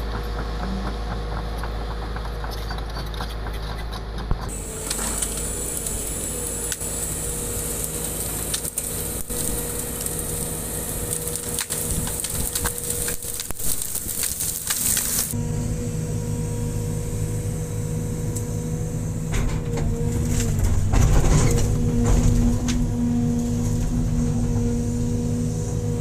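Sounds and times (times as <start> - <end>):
excavator diesel engine running: 0.0 - 26.0
wood crackling and snapping: 4.2 - 15.4.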